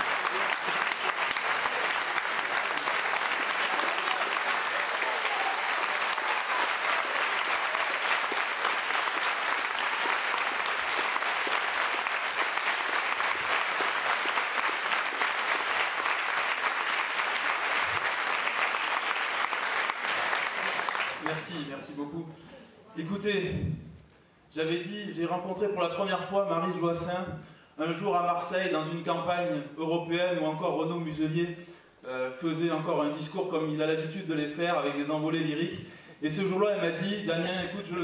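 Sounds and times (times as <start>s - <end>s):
audience applauding: 0.0s - 21.7s.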